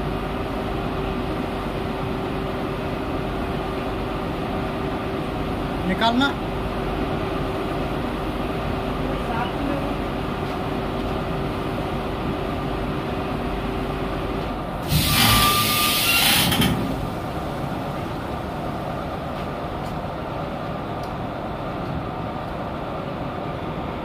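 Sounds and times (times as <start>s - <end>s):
washing machine hum: 0.0s - 24.0s
pneumatic hiss: 14.8s - 17.0s.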